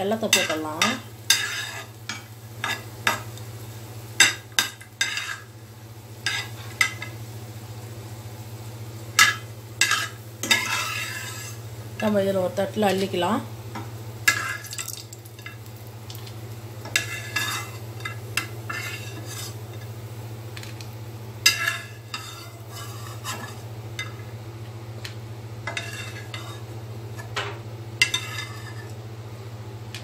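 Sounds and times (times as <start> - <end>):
light sizzle: 0.0 - 30.0
metal spatula scraping frying pan: 1.3 - 2.0, 9.8 - 11.6, 16.9 - 19.6, 21.4 - 23.6, 25.7 - 27.3, 28.0 - 29.0.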